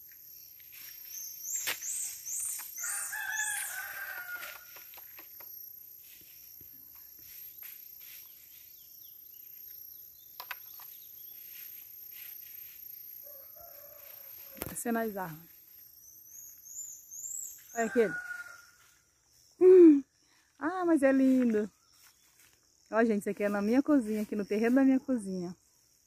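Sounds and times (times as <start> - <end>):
faint outdoor ambience: 0.0 - 26.0
rooster crowing: 2.8 - 4.9, 13.2 - 14.7, 17.7 - 19.0.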